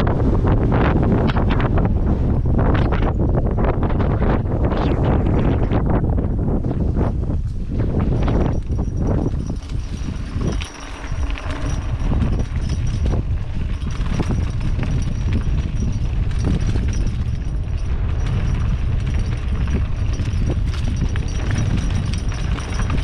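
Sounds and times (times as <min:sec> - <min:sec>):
wind buffeting microphone: 0:00.0 - 0:23.0
bike rattling over bumps: 0:05.8 - 0:23.0.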